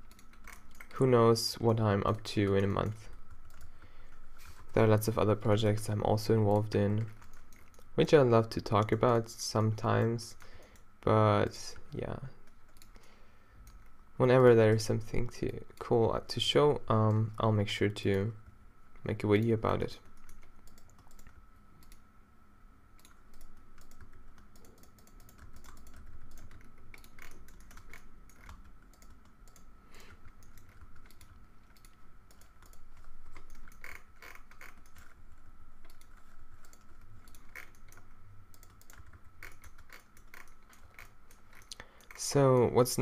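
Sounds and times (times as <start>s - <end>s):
faint high whine: 0.0s - 43.0s
keyboard keys clicking: 23.0s - 35.2s, 35.8s - 43.0s.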